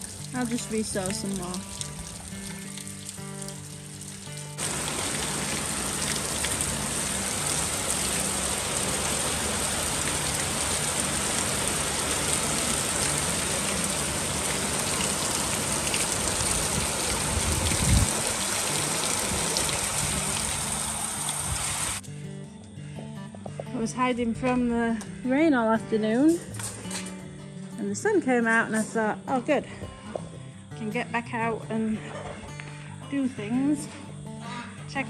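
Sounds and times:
heavy rain splashing into water: 0.0s - 22.0s.

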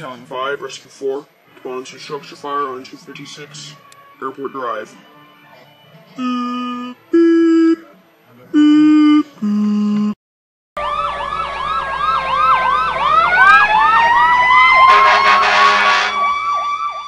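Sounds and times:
electronic alert tones: 6.2s - 7.8s, 8.6s - 10.2s
fire truck sirens: 6.2s - 7.8s, 10.8s - 17.0s.

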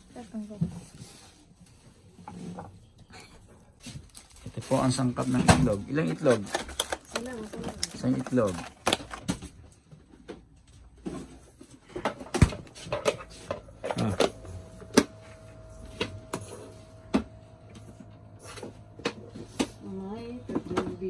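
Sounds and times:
kitchen items clicking and knocking: 4.6s - 14.4s.

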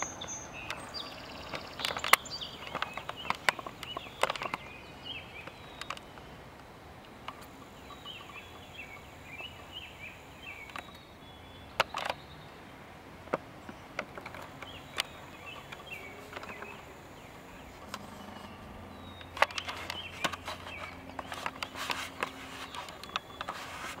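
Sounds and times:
low steady hum: 0.0s - 24.0s
small birds chirping: 0.0s - 24.0s
sharp clicks and knocks: 0.6s - 4.7s, 17.8s - 24.0s.

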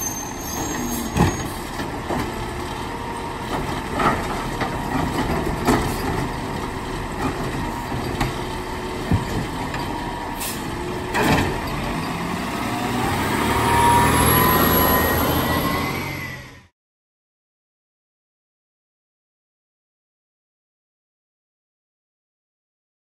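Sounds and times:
truck diesel engine revving: 0.6s - 16.7s.

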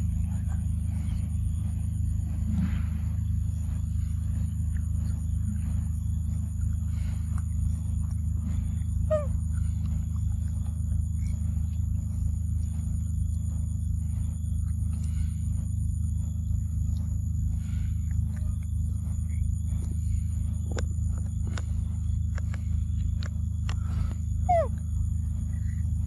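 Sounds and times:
pulsing insect trill: 0.0s - 26.0s
steady low hum: 0.0s - 26.0s.

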